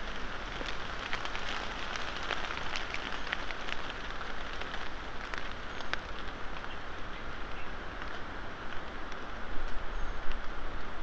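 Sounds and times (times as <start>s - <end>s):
rain on leafy undergrowth: 0.0s - 11.0s.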